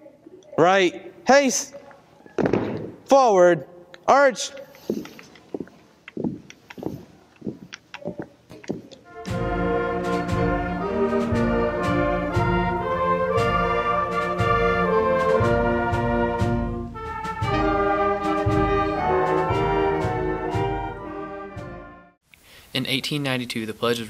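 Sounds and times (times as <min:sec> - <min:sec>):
brass music: 0:09.0 - 0:22.2
steady drum beat: 0:09.2 - 0:21.9.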